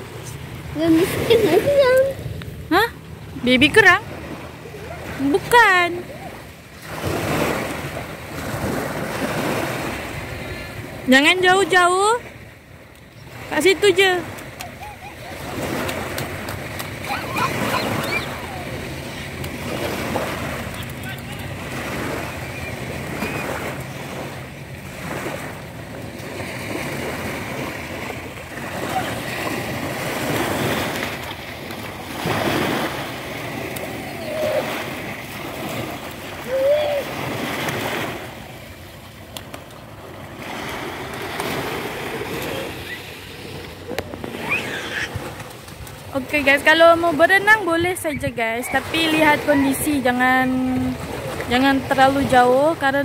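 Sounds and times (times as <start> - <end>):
small waves breaking on sand: 0.0 - 53.0
wind on microphone: 47.4 - 52.5.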